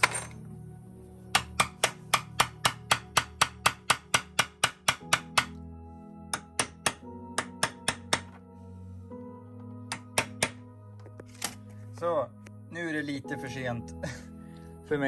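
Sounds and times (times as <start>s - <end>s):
hammer tapping metal punch: 1.3s - 5.6s, 6.3s - 8.4s, 9.9s - 10.6s.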